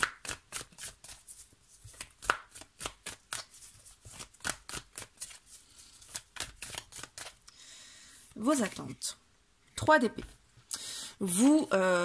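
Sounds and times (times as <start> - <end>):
cards being shuffled: 0.0 - 7.5.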